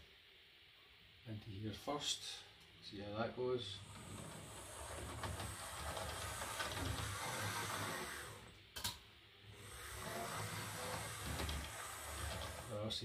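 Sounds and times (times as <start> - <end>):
wheels rattling over rails: 3.8 - 8.5, 9.6 - 12.9
model train motor whirring: 3.8 - 8.6, 9.5 - 13.0.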